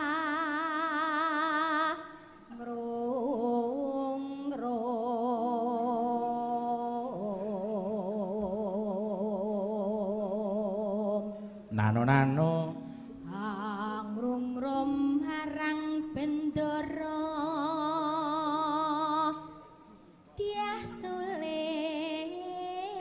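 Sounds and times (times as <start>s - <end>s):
woman singing into a microphone: 0.0s - 11.7s, 12.6s - 19.7s, 20.4s - 23.0s.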